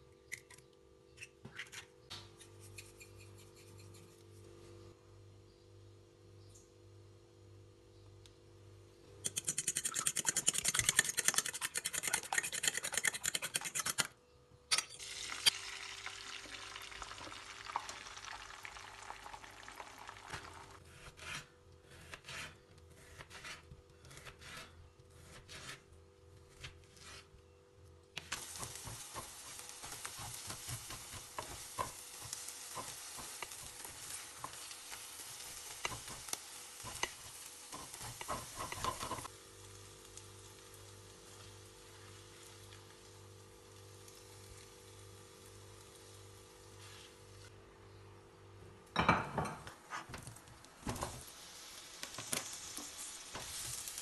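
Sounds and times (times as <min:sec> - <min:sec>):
spoon beating eggs in a bowl: 0:09.2 - 0:14.1, 0:35.7 - 0:39.3
hissing sizzle: 0:15.0 - 0:20.8, 0:28.2 - 0:47.5, 0:50.1 - 0:54.0
spatula scraping a frying pan: 0:28.4 - 0:39.3.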